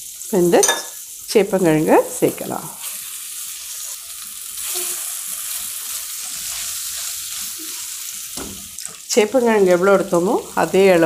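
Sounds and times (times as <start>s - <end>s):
food sizzling in hot oil: 0.0s - 11.0s
spatula stirring in pan: 2.8s - 11.0s.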